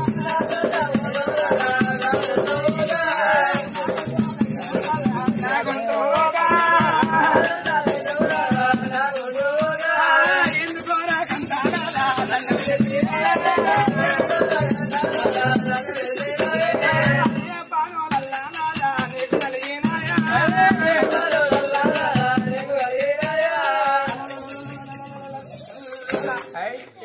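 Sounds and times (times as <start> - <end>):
shaken percussion rattling: 0.0 - 26.6.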